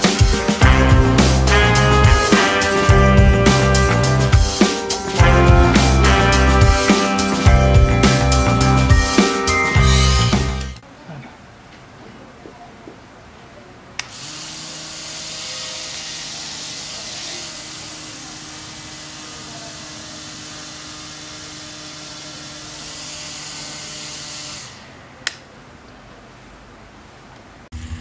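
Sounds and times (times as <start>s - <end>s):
small motor spinning propeller: 14.1s - 24.9s
switch click: 25.2s - 25.4s.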